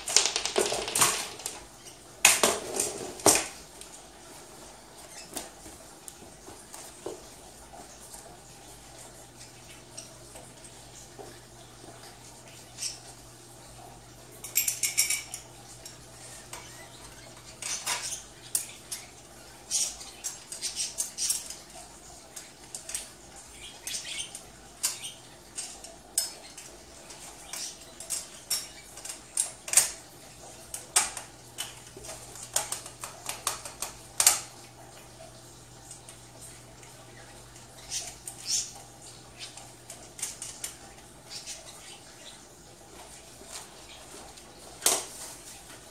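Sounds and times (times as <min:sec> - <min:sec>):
metal bed frame clinking and rattling: 0:14.4 - 0:16.0.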